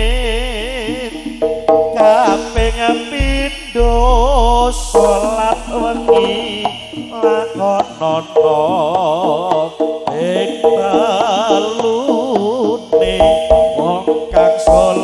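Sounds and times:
steady held note: 0.0 - 8.9
drum strokes: 0.0 - 15.0
ornamented melody line: 0.0 - 15.0.

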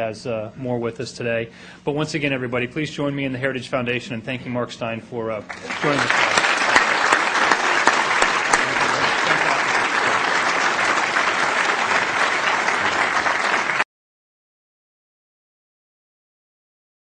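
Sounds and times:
audience applauding: 5.5 - 13.9.

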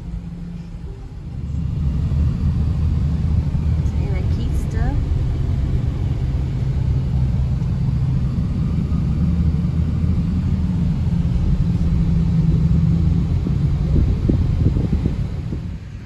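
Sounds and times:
car engine and road noise: 0.0 - 16.0.

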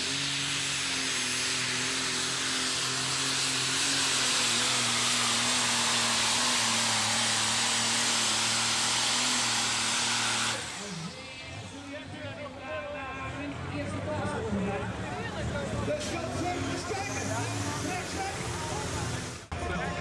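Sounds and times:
tractor diesel engine running flat out: 0.0 - 12.6.

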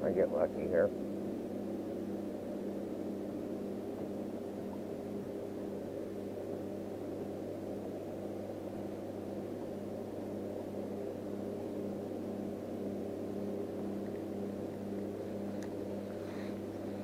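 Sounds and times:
boat motor humming: 0.6 - 17.0.

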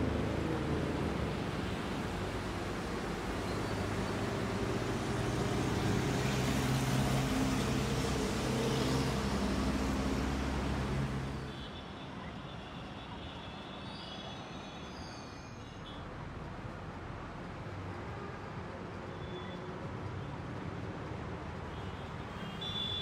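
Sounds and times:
heavy vehicle engine running: 0.0 - 11.5
road traffic noise: 0.0 - 23.0
faint high squeal: 13.9 - 16.0.

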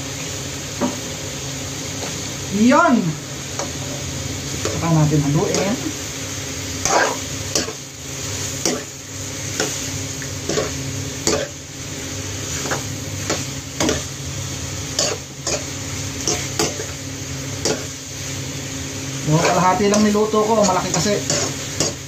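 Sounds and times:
food sizzling: 0.0 - 22.0
metal spoon scraping a frying pan: 6.8 - 7.8, 15.0 - 17.0, 19.9 - 22.0.

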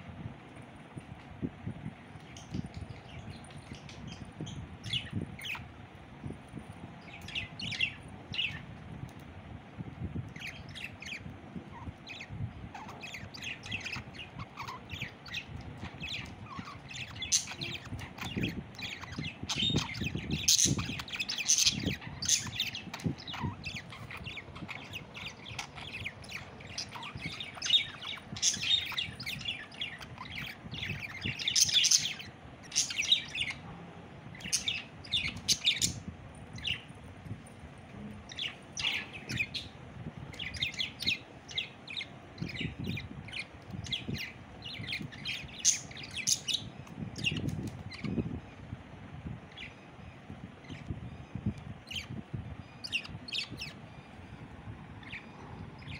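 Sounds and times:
budgerigar chirping: 12.8 - 33.6, 38.4 - 47.4.

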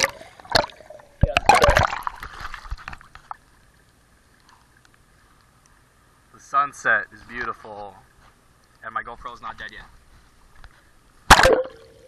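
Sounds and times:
water splashing and gurgling: 0.0 - 4.9, 11.3 - 12.0.

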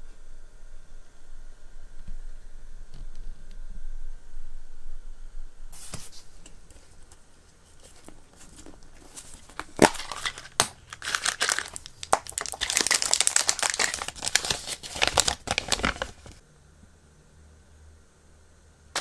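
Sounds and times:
paper and plastic crinkling: 7.7 - 16.4.

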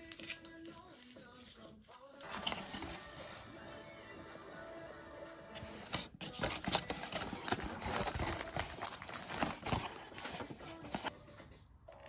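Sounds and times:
cardboard box crinkling and scraping: 5.8 - 11.1.

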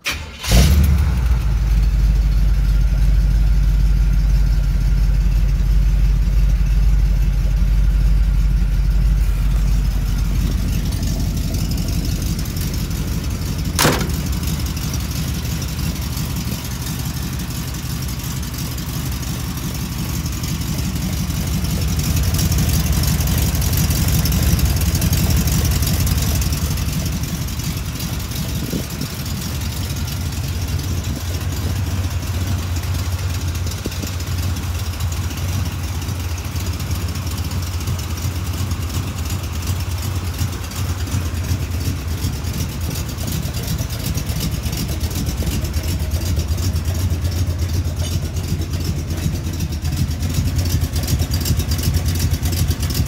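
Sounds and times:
vee eight engine idling: 1.2 - 53.0
exhaust rattling tap: 11.8 - 15.2
sharp click: 13.8 - 14.4.

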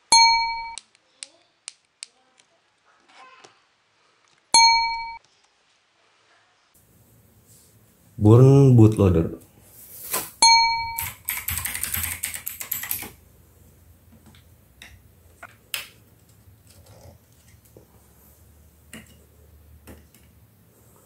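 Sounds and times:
rapid clicking and rattling: 11.0 - 13.2.

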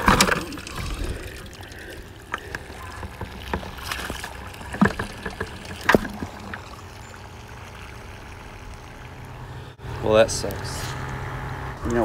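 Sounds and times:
water sloshing in bucket: 0.0 - 9.6
bucket handle clicks and knocks: 2.3 - 6.6.

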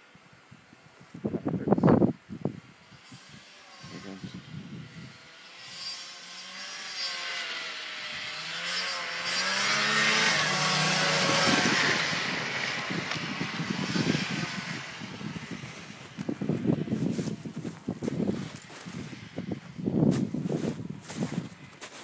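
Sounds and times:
snowmobile engine: 2.8 - 22.0.

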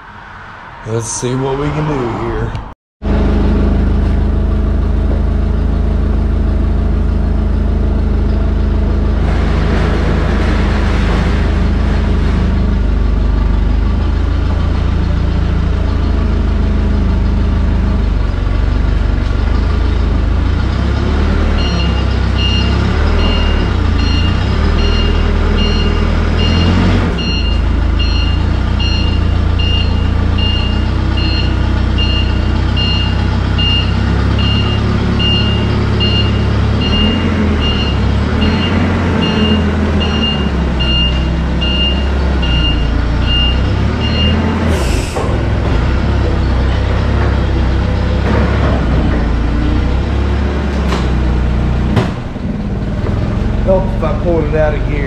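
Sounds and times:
truck engine running: 0.9 - 55.0
reversing alarm beeping: 21.6 - 44.6.

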